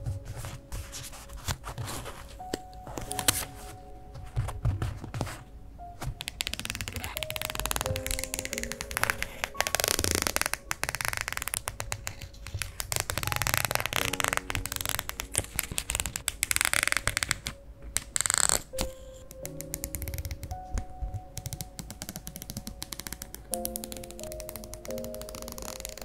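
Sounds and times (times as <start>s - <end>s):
soft background music: 0.0s - 26.0s
scissors cutting plastic tape: 6.0s - 20.7s, 21.4s - 26.0s.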